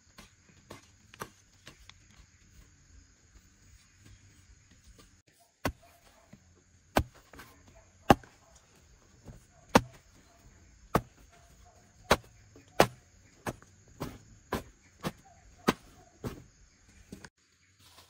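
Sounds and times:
hoe chopping into dry soil: 5.6 - 6.1, 6.9 - 7.5, 8.1 - 8.4, 9.3 - 10.2, 10.9 - 11.4, 12.0 - 16.5.

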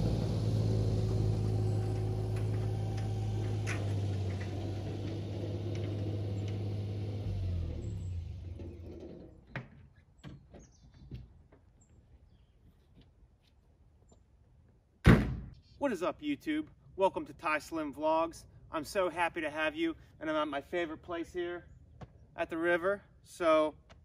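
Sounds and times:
small truck engine running: 0.0 - 9.5.

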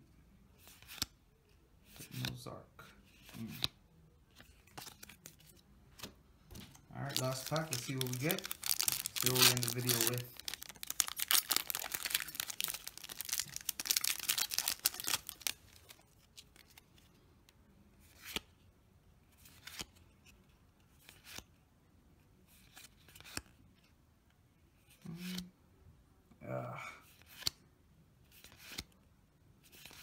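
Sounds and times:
foil pack tearing and crinkling: 7.0 - 15.6.

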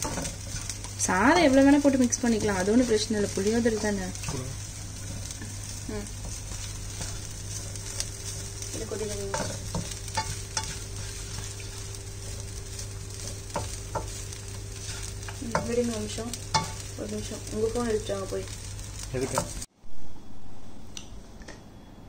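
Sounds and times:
spatula scraping a pan: 0.0 - 1.0, 3.7 - 16.8
rice sizzling in a wok: 0.0 - 19.7.

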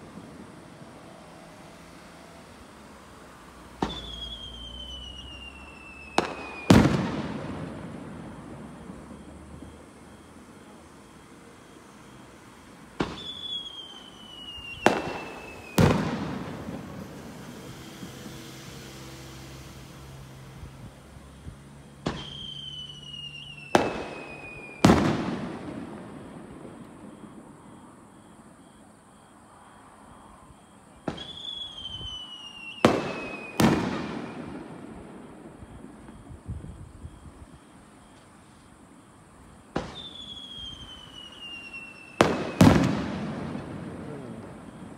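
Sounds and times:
fireworks bangs: 0.0 - 29.3, 30.5 - 44.9
firework whistle: 0.0 - 44.9.

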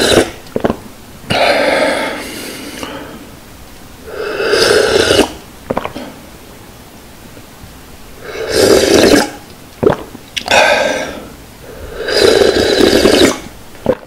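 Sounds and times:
person slurping broth: 0.0 - 3.2, 4.1 - 6.2, 8.2 - 14.0
short gulps: 0.0 - 3.2, 4.2 - 6.2, 8.3 - 14.0.

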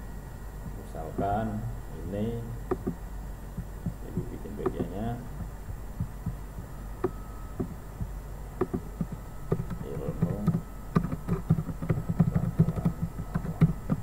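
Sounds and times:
low steady hum: 0.0 - 14.0
keyboard typing: 2.7 - 3.0, 3.6 - 7.8, 8.6 - 14.0.

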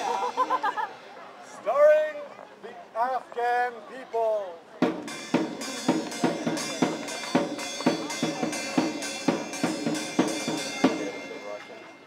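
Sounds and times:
steady drum beat: 0.0 - 0.9, 4.8 - 11.9.

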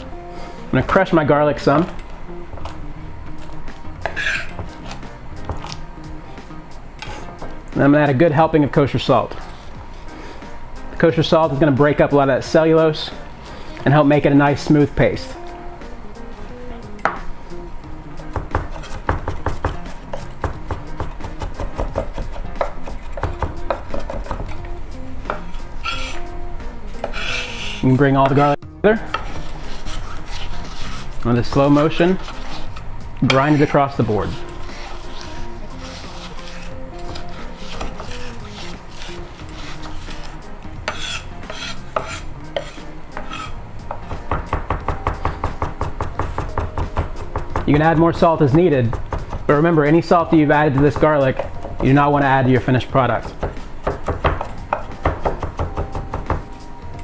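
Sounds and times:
knife scraping cutting board: 4.0 - 5.8, 7.0 - 7.4, 18.6 - 20.8, 25.3 - 26.3, 26.9 - 43.6
knife chopping on wooden board: 18.3 - 24.6, 34.6 - 47.9, 53.2 - 56.6.

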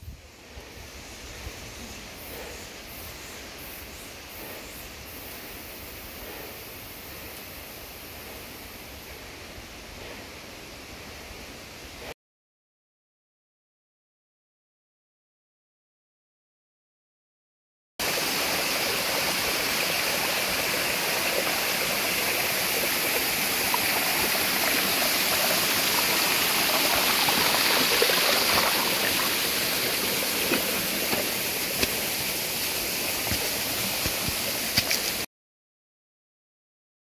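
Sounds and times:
stream rushing over rocks: 18.0 - 35.3.

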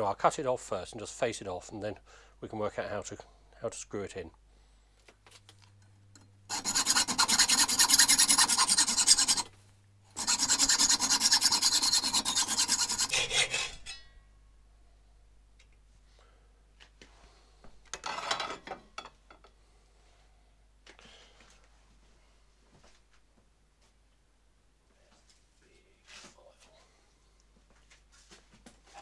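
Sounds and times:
hacksaw cutting metal: 6.5 - 9.5, 10.1 - 14.1.

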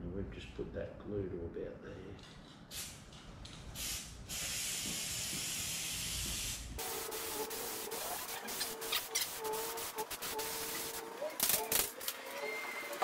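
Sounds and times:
aerosol spray hissing: 3.8 - 11.6.

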